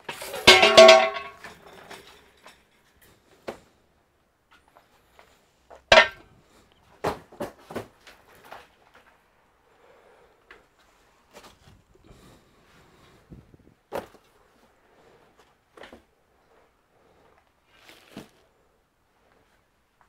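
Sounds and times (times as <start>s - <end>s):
hard objects clattering: 0.0s - 3.0s, 5.8s - 6.3s.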